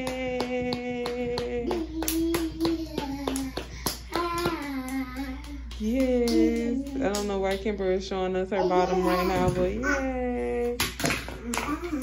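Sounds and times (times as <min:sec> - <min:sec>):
rhythmic hand clapping: 0:00.0 - 0:07.8, 0:10.8 - 0:12.0.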